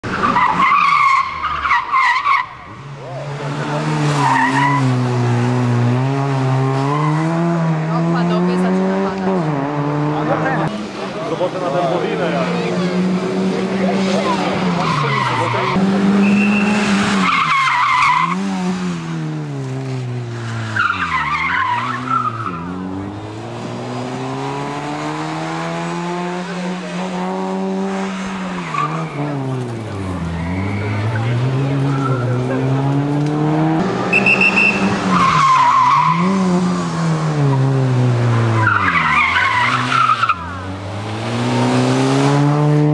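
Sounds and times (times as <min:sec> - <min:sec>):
car engine accelerating: 0:02.7 - 0:42.9
tyres squealing: 0:28.0 - 0:32.5.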